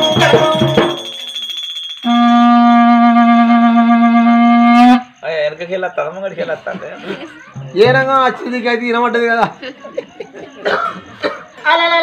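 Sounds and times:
plastic tube blown like a horn: 0:02.1 - 0:05.0.

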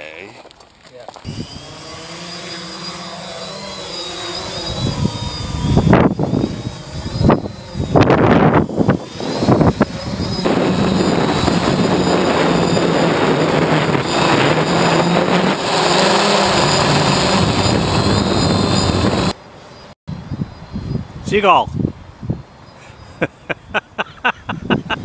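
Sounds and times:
drone motors whining: 0:01.1 - 0:19.4
gusty wind bursts: 0:03.4 - 0:19.4, 0:20.1 - 0:22.6
wind rush: 0:04.0 - 0:19.4, 0:20.1 - 0:22.6.

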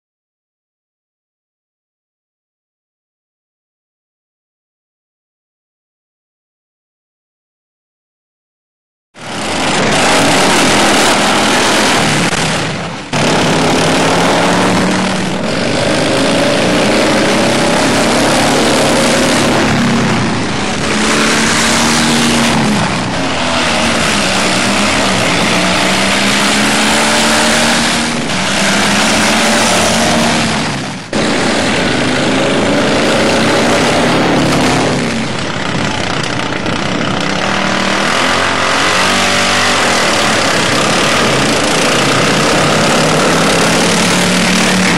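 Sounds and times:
lawnmower engines revving: 0:09.2 - 0:44.9.

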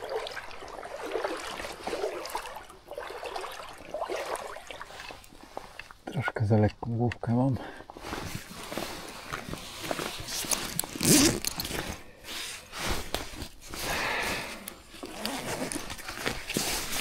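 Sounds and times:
clothing and fishing tackle rustling: 0:07.7 - 0:17.0.

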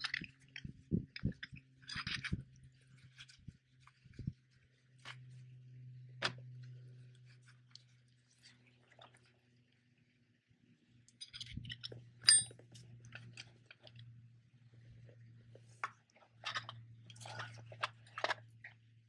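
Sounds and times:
ringing metal clink: 0:12.2 - 0:12.5.

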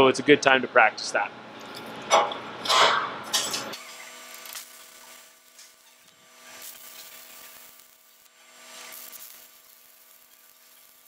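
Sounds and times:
welding arc crackling: 0:01.4 - 0:11.0.

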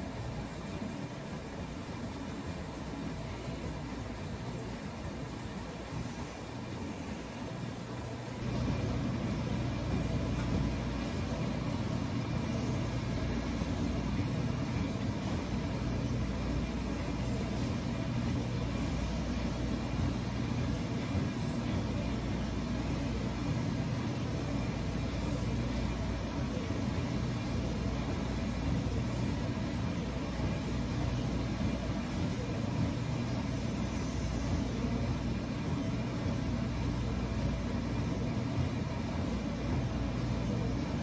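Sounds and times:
low rumbling background noise: 0:00.0 - 0:41.0.

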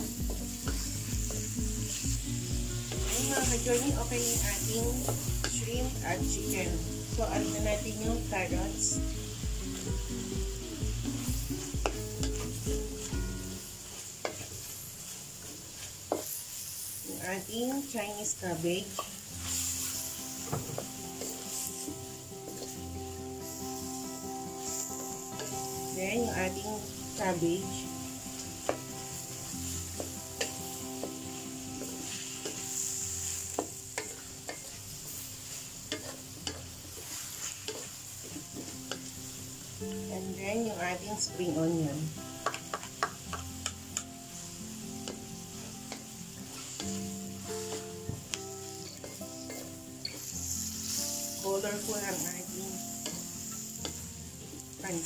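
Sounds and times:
background music with steady beat: 0:00.0 - 0:14.7, 0:18.6 - 0:37.1, 0:37.7 - 0:55.0
food sizzling in oil: 0:00.0 - 0:55.0
spatula scraping a wok: 0:11.2 - 0:17.1, 0:18.9 - 0:24.0, 0:24.6 - 0:26.3, 0:27.1 - 0:39.4, 0:44.4 - 0:48.0, 0:48.6 - 0:54.0
spatula knocking against wok: 0:42.4 - 0:43.8.

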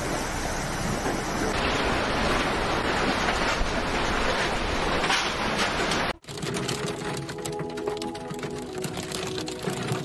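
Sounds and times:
storm wind: 0:00.0 - 0:06.2
heavy rain: 0:00.0 - 0:10.0.

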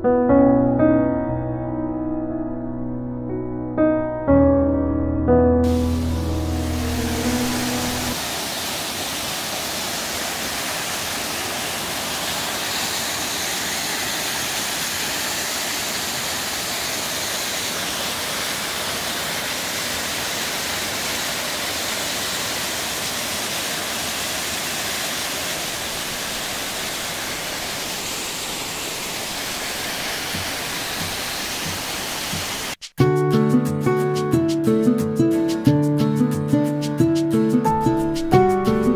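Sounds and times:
waterfall rushing: 0:05.6 - 0:32.8.

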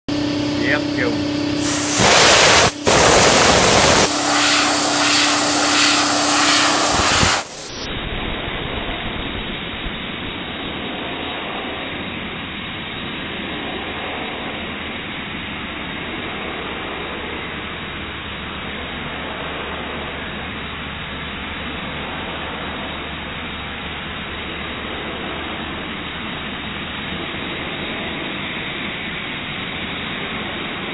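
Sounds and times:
compressed air hissing: 0:01.0 - 0:07.9.

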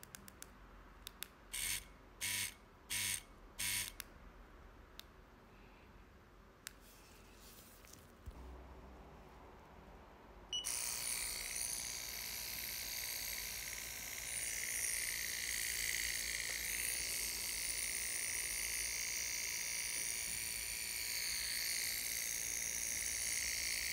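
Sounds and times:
tattoo machine buzzing: 0:01.5 - 0:04.0, 0:10.6 - 0:23.9.

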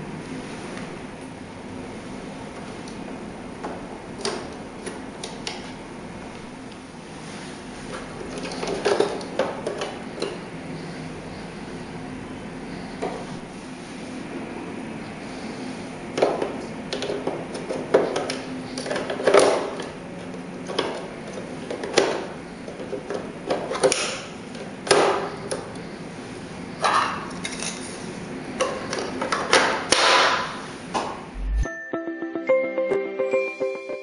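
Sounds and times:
steady low hum: 0:00.0 - 0:16.9, 0:30.6 - 0:31.7.

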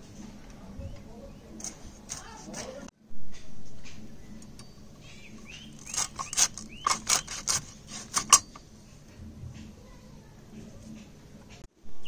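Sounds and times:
bird chirps: 0:03.8 - 0:07.4.

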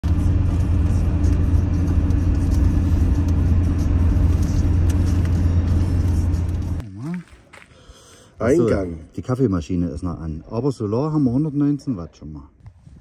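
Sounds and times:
engine and road noise inside van: 0:00.0 - 0:06.8.

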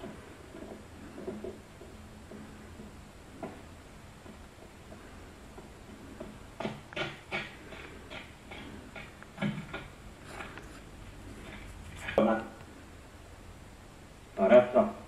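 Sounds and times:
old film soundtrack hiss: 0:00.0 - 0:15.0.

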